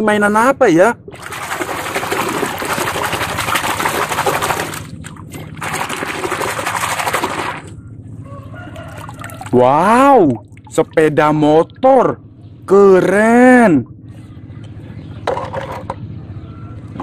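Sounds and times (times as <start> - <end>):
water splashing and sloshing: 1.0 - 12.0.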